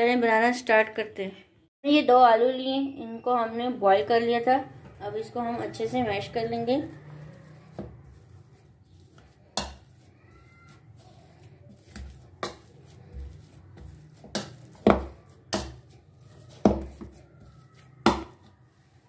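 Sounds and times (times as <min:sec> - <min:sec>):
potato masher knocking bowl: 0:10.7 - 0:18.5.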